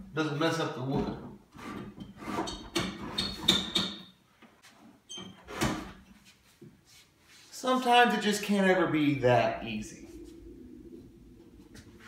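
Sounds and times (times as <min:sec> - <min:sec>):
squeaky scrapes of metal on wood: 0:01.5 - 0:04.1.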